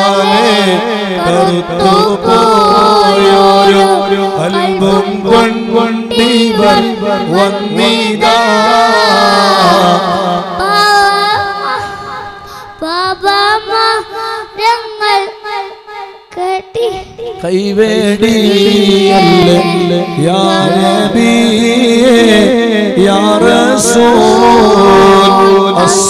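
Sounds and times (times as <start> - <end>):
man singing: 0.0 - 12.3, 17.3 - 26.0
boy singing into a microphone: 0.0 - 26.0.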